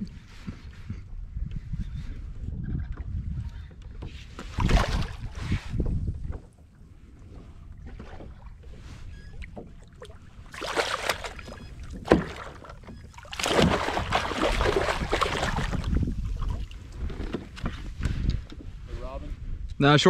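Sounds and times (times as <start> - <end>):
water splashing against kayak hull: 4.1 - 18.1
fish thrashing at the surface: 4.6 - 5.4, 10.0 - 16.8.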